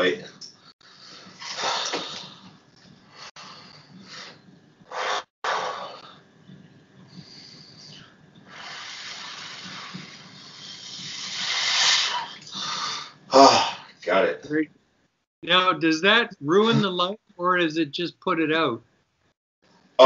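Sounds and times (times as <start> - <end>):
man breathing heavily: 0.8 - 6.2, 7.1 - 13.8.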